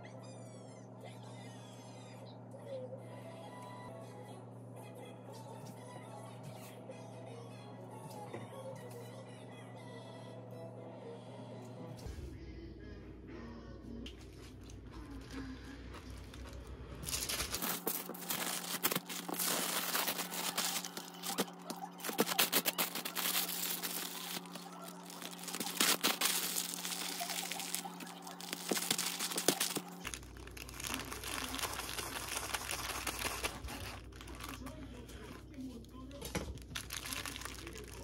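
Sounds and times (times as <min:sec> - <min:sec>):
low steady hum: 0:00.0 - 0:38.0
paper crinkling and crackling: 0:14.3 - 0:38.0
paper rustling: 0:15.1 - 0:35.4, 0:36.4 - 0:38.0.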